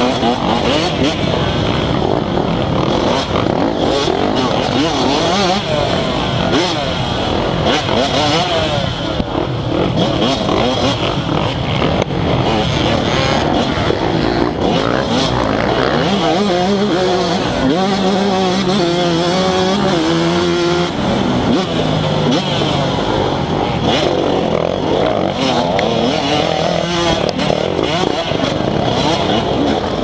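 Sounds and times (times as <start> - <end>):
dirt bike engine revving: 0.0 - 30.0
other dirt bike engines: 0.0 - 30.0.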